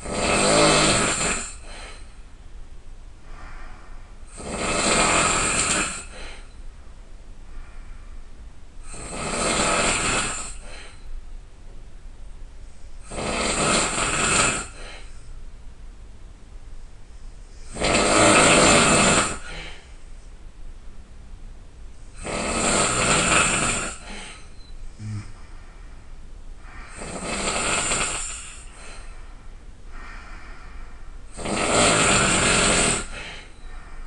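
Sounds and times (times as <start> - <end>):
person snoring loudly: 0.0 - 1.9, 4.3 - 6.4, 8.9 - 10.9, 13.1 - 15.1, 17.7 - 19.8, 22.2 - 24.4, 25.0 - 25.4, 26.7 - 29.1, 31.3 - 33.6
quiet breathing: 0.8 - 11.4, 14.1 - 15.6, 18.8 - 21.0, 23.1 - 34.0.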